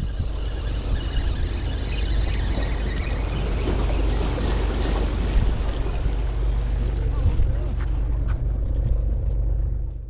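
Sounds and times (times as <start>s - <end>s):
wind buffeting microphone: 0.0s - 10.0s
waves breaking on rocks: 0.3s - 8.3s.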